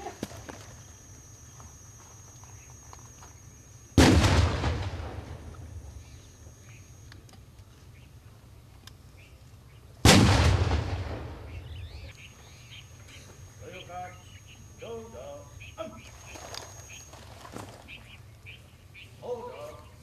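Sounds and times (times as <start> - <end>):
loud cannon shots: 4.0 - 6.0, 10.0 - 12.1.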